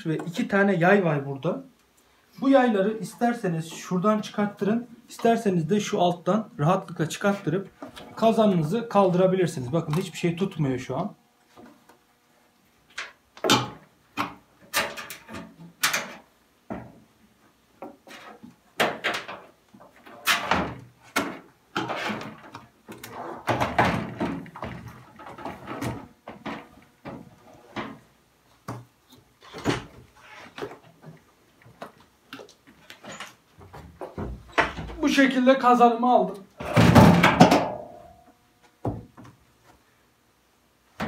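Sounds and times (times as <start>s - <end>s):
clunks and scrapes of plastic and metal: 13.0s - 17.0s, 17.8s - 31.2s.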